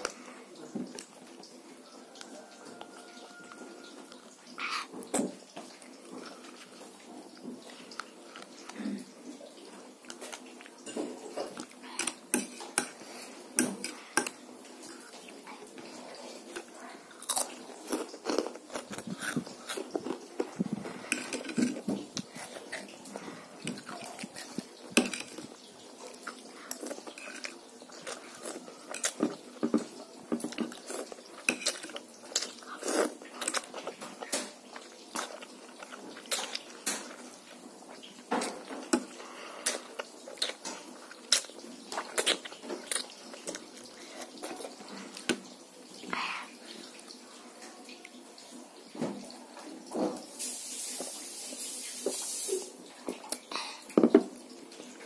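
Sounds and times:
child chewing and eating: 0:00.0 - 0:55.0.

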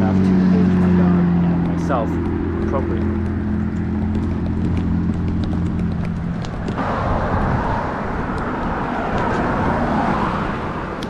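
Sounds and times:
engine hum: 0:00.0 - 0:11.0
tyre rush of passing cars: 0:00.0 - 0:11.0.

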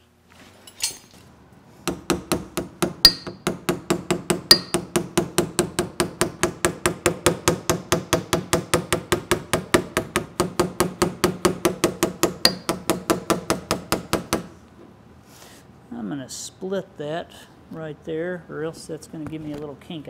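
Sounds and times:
hammer tapping steel: 0:01.9 - 0:14.5
hard hammer blows ringing: 0:01.9 - 0:14.5.

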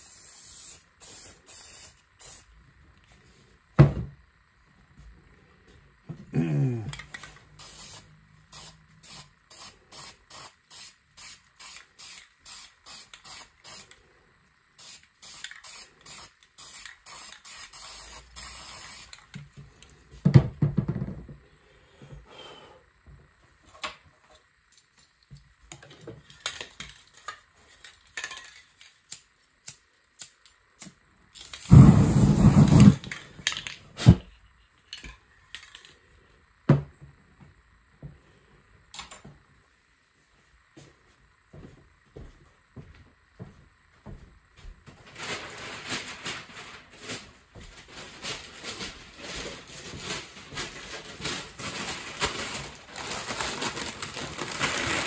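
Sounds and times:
spray paint can hissing: 0:00.0 - 0:02.5, 0:07.5 - 0:14.0, 0:14.8 - 0:19.2, 0:31.4 - 0:33.2.

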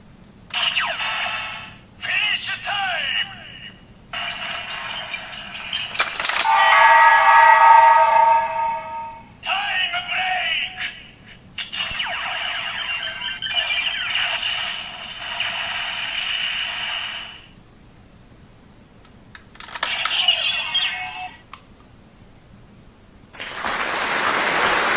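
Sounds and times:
plastic clicks: 0:19.0 - 0:20.2.

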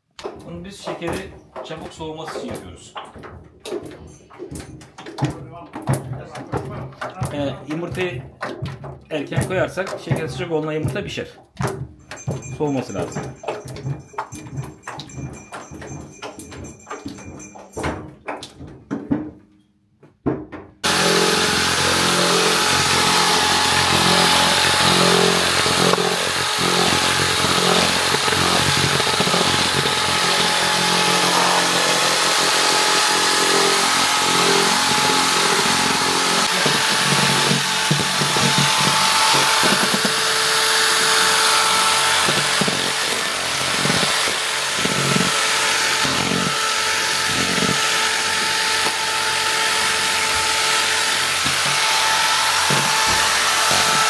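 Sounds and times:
knocks: 0:00.1 - 0:20.9
electric drill whisking in plastic bowl: 0:20.8 - 0:54.0.

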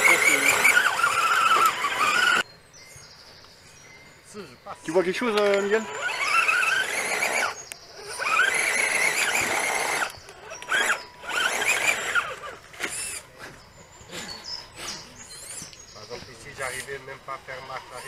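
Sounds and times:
rc truck motor whining: 0:00.0 - 0:02.5, 0:05.3 - 0:15.6.

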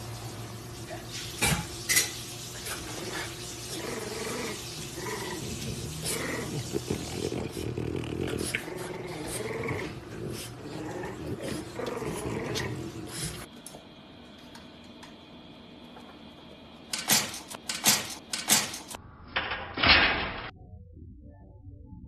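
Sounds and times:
dog growling: 0:02.9 - 0:13.5.

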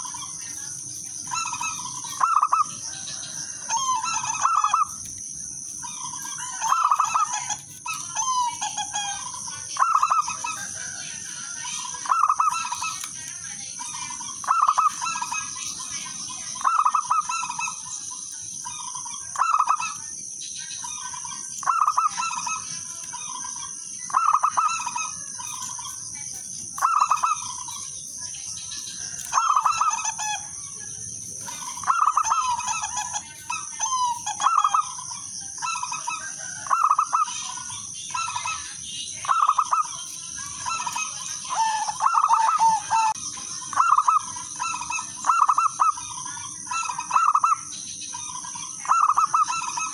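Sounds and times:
dove cooing: 0:06.1 - 0:13.1, 0:29.1 - 0:30.4, 0:31.4 - 0:35.0, 0:39.2 - 0:47.7, 0:48.8 - 0:49.9.

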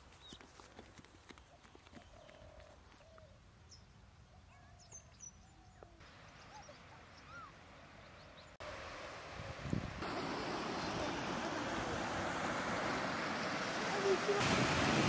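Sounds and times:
faint birdsong: 0:00.0 - 0:08.6
steady rushing noise: 0:08.6 - 0:15.0.

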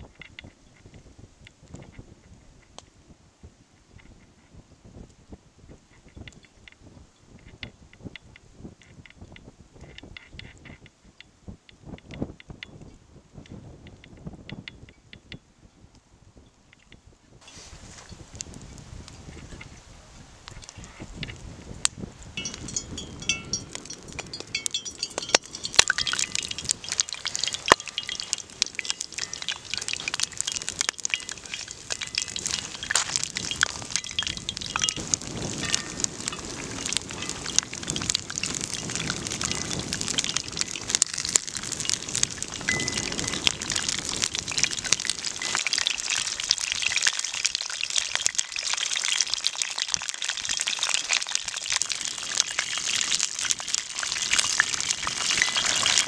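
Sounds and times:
pies sizzling in hot oil: 0:20.6 - 0:56.0
oil popping: 0:22.4 - 0:56.0.

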